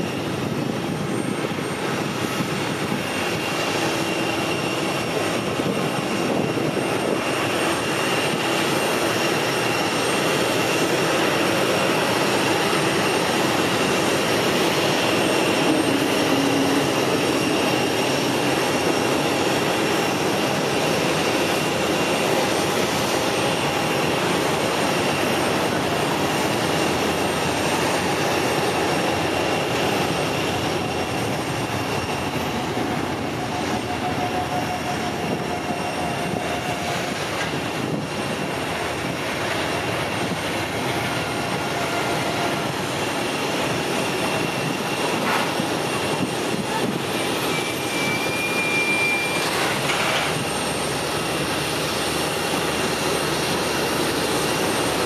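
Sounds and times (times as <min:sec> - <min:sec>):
high engine whine: 0:00.0 - 0:55.0
jet engines rushing: 0:00.0 - 0:55.0.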